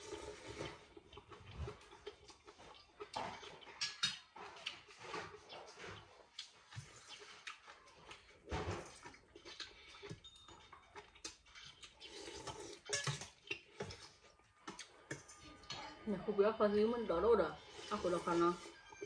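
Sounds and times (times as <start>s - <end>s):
dishes and utensils clinking: 2.6s - 6.0s, 8.5s - 16.1s.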